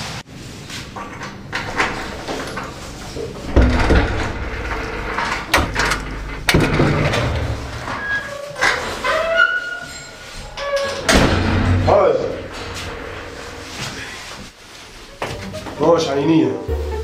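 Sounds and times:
door thudding: 0:03.4 - 0:07.9, 0:11.0 - 0:13.9.

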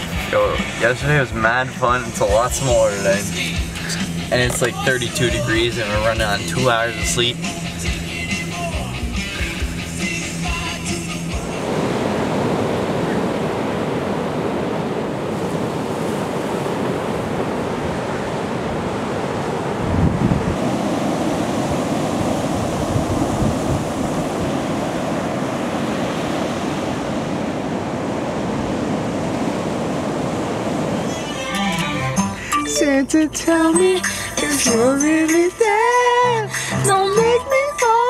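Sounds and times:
waves breaking: 0:00.0 - 0:38.0
wind on microphone: 0:11.4 - 0:31.1.

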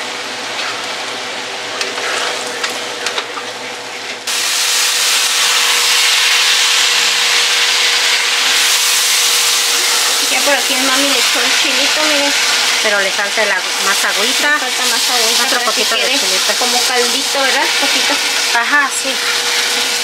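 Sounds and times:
loud steady sizzle: 0:00.0 - 0:20.0
vegetables frying in a skillet: 0:04.2 - 0:20.0.

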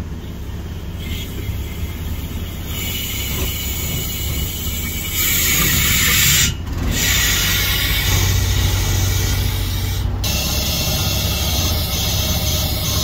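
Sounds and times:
low machine hum: 0:00.0 - 0:13.0
air hissing from hoses: 0:01.0 - 0:13.0.

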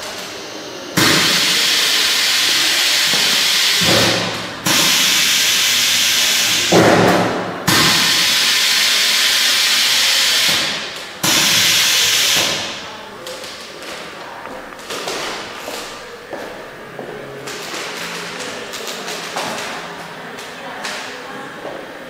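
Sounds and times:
vacuum sealer hissing: 0:00.0 - 0:12.8.

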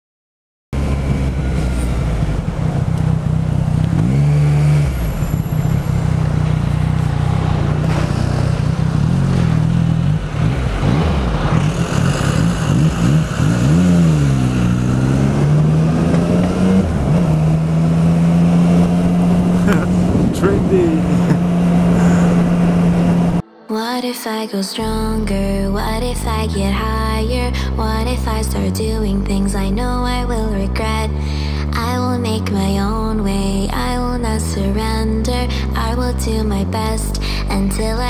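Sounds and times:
vehicle engine revving: 0:00.8 - 0:23.4.

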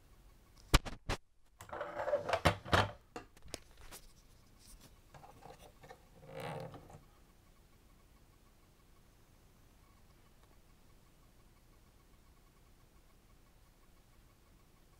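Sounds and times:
rubbing and knocking on plastic toy: 0:00.7 - 0:07.0.

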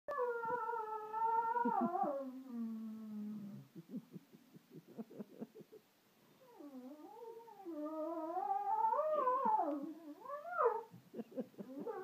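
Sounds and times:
dog howling: 0:00.1 - 0:02.9, 0:06.5 - 0:10.9.

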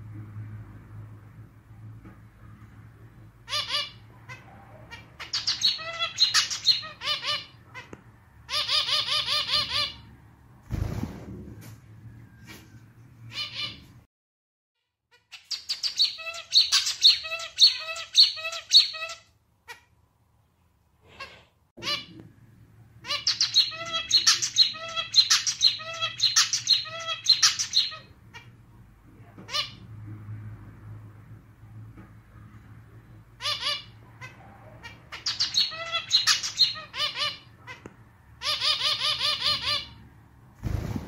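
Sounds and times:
finch singing: 0:03.5 - 0:07.9, 0:15.3 - 0:19.2, 0:23.0 - 0:28.1, 0:33.4 - 0:37.8.

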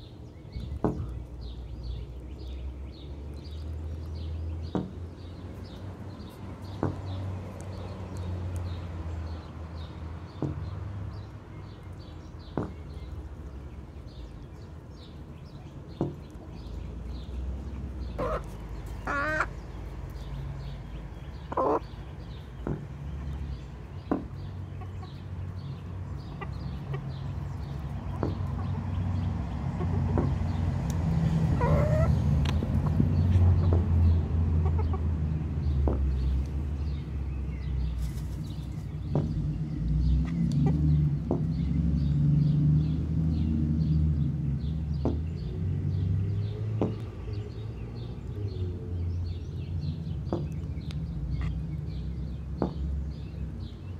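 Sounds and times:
chickens clucking: 0:17.8 - 0:20.7, 0:21.3 - 0:23.4, 0:24.1 - 0:30.6, 0:31.3 - 0:36.5, 0:40.2 - 0:41.5
chicken warbling call: 0:18.2 - 0:19.5, 0:31.6 - 0:32.2.

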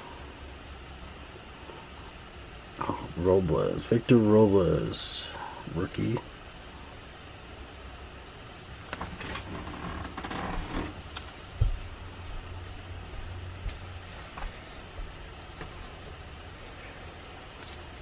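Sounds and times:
steady low rumble: 0:00.0 - 0:18.0
paper cards sliding: 0:15.4 - 0:16.1, 0:17.3 - 0:18.0.

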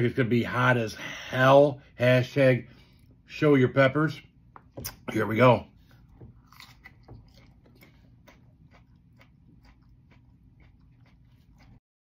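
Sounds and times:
man chewing crunchy pepper: 0:05.7 - 0:11.8.

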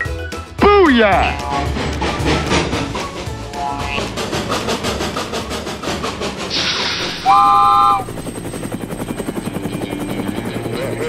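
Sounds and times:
helicopter rotor chopping: 0:01.0 - 0:11.0
hiss: 0:04.6 - 0:07.3
train horn blast: 0:07.0 - 0:08.2.

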